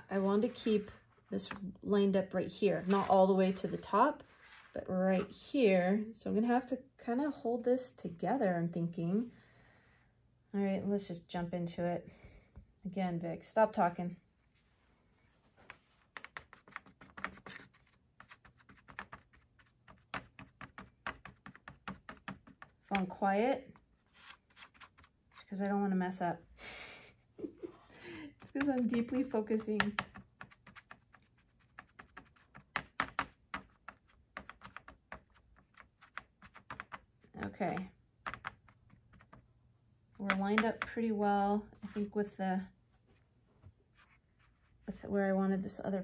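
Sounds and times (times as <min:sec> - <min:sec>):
sponge brush dabbing paint: 0:00.0 - 0:01.4, 0:15.4 - 0:25.6, 0:28.5 - 0:39.5.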